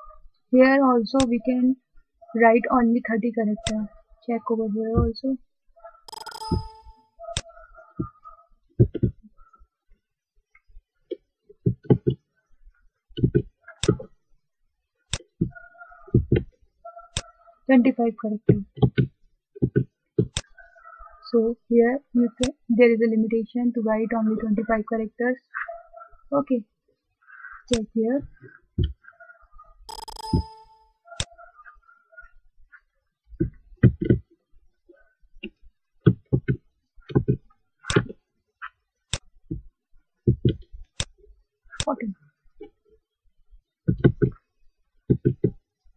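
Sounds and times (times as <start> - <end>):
keyboard key presses: 6.1 - 7.5, 29.9 - 31.3
mouse clicks: 6.1 - 7.5, 29.9 - 31.4.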